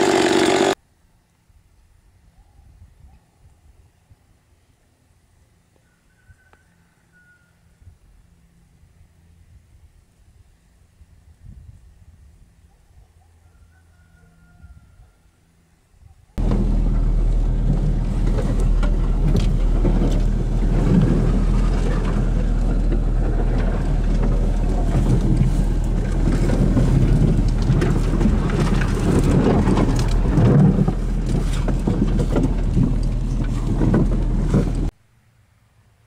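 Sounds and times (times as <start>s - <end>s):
car engine running: 16.4s - 34.9s
knocks and rattles: 16.4s - 34.9s.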